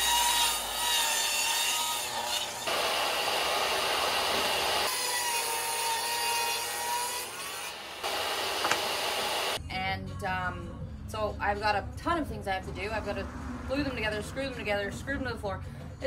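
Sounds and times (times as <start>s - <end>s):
saw cutting wood: 0.0s - 9.6s.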